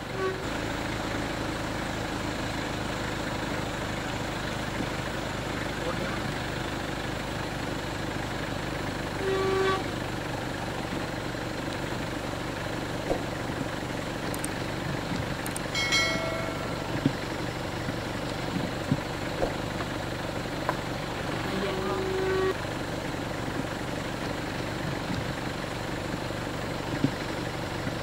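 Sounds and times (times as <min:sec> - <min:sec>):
horn toots: 0:00.0 - 0:00.5, 0:09.2 - 0:10.0, 0:15.8 - 0:17.1, 0:21.6 - 0:22.6
vehicle engine idling: 0:00.0 - 0:28.0.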